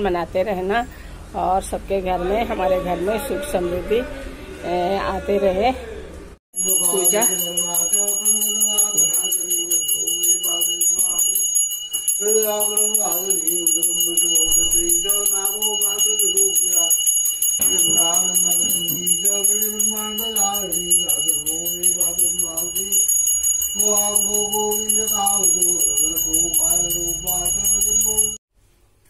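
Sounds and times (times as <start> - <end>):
small hand bell ringing rapidly: 6.5 - 28.4
person singing a devotional hymn: 17.6 - 22.9, 23.8 - 27.7.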